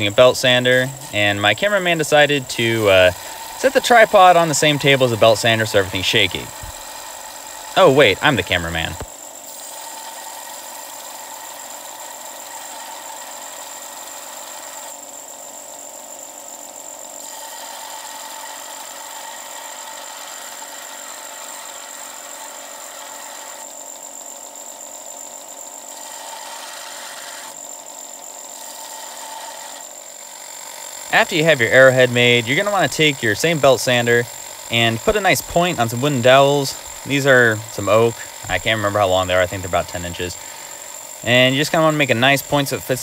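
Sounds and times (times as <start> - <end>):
metal grinding on sanding belt: 0.0 - 14.9, 28.5 - 43.0
belt sander whine: 0.0 - 43.0.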